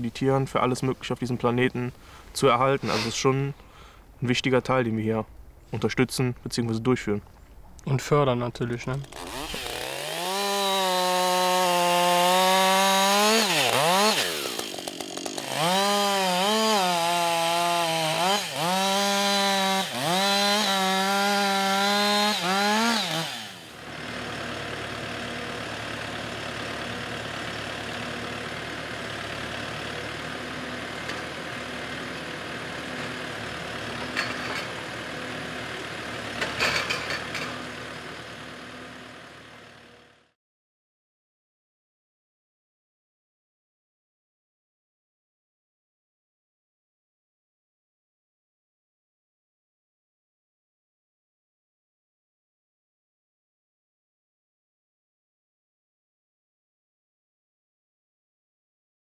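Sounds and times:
chainsaw cutting log: 0:02.8 - 0:03.2, 0:08.8 - 0:40.2
diesel tractor hum: 0:15.4 - 0:40.3.

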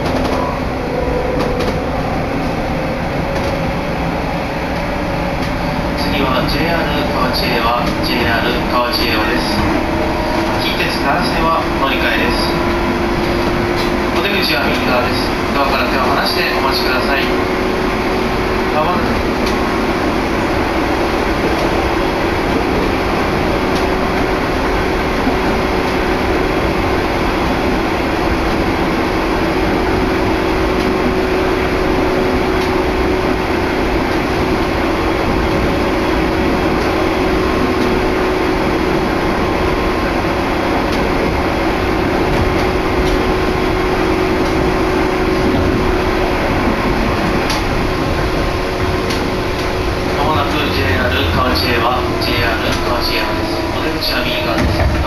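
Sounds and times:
train running noise inside car: 0:00.0 - 0:55.0
constant hum: 0:27.9 - 0:55.0.

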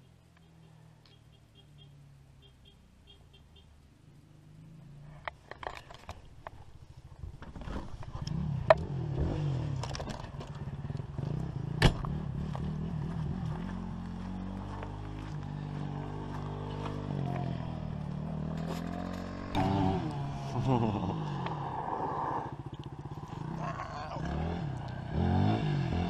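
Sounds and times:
motorcycle engine revving: 0:06.8 - 0:26.0.

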